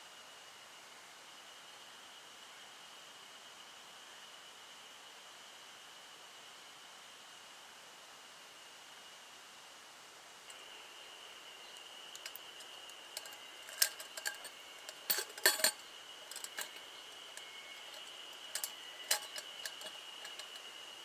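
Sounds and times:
metal handle clinking against pot: 12.1s - 20.7s.

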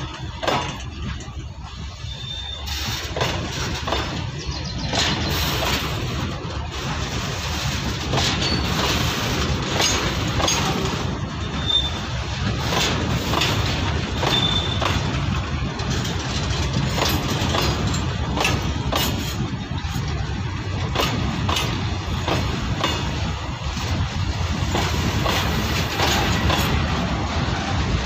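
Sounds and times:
freight train rumble: 0.0s - 28.0s
wheels clicking over rail joints: 0.0s - 28.0s
wheel squeaks: 2.0s - 3.2s, 11.4s - 12.1s, 14.2s - 15.0s.

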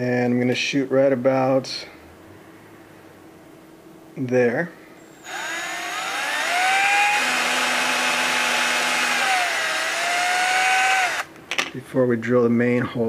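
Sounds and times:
cordless drill motor whine: 5.2s - 11.3s.

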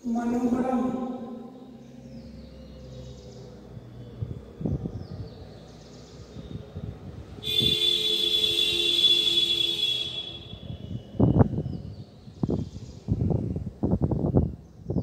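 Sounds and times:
loud high-pitched buzzing tone: 7.4s - 10.8s.

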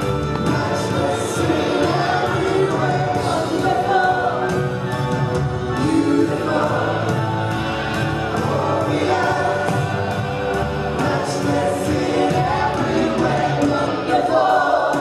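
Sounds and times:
choir singing: 0.0s - 4.8s, 5.5s - 15.0s
band with bass and drums: 0.0s - 15.0s.

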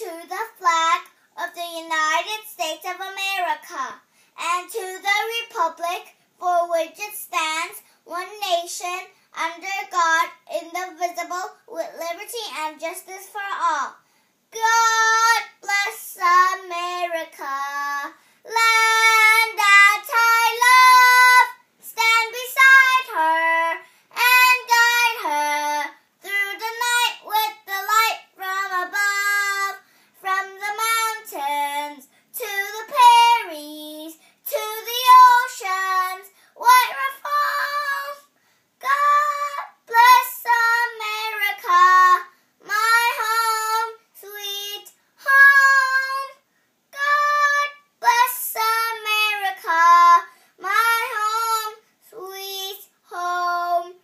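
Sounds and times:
girl singing: 0.0s - 54.0s.

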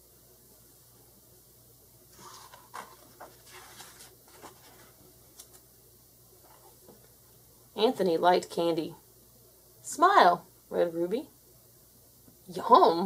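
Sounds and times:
paper page turning: 2.1s - 5.6s.

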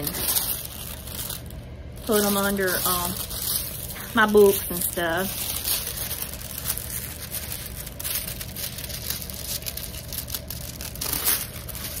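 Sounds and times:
plastic sheet crinkling: 0.0s - 12.0s.

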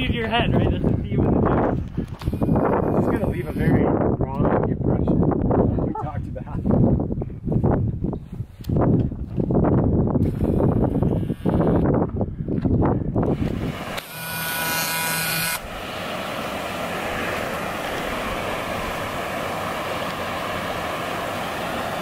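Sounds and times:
wind buffeting microphone: 0.0s - 14.0s, 15.6s - 22.0s
steady rushing hiss: 13.3s - 22.0s.

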